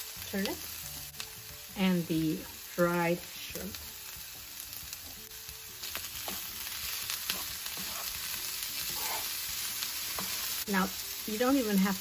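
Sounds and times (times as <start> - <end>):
vegetables sizzling in frying pan: 0.0 - 12.0
wooden spoon scraping a pan: 6.2 - 10.6.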